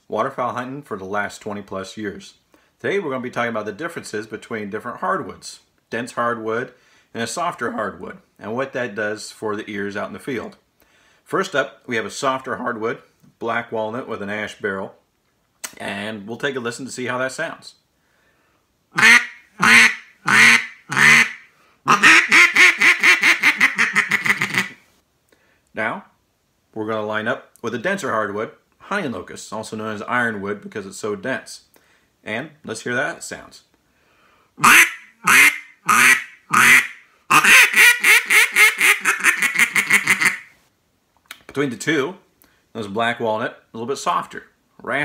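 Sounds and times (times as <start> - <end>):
duck call quacks: 19.0 - 24.8, 34.6 - 40.5.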